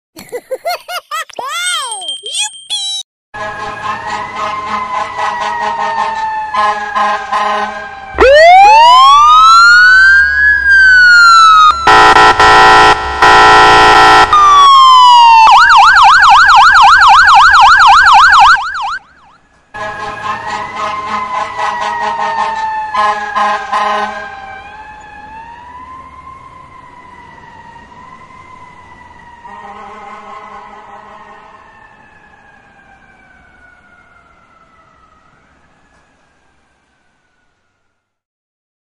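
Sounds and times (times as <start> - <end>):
air horn blasts: 3.4 - 7.9, 11.8 - 14.6, 19.8 - 24.2, 29.5 - 31.5
wailing siren: 3.4 - 38.2
wavering siren: 3.4 - 38.2
fast yelp siren: 3.6 - 35.4
falling siren tone: 7.8 - 19.5, 20.1 - 29.9, 30.6 - 38.1.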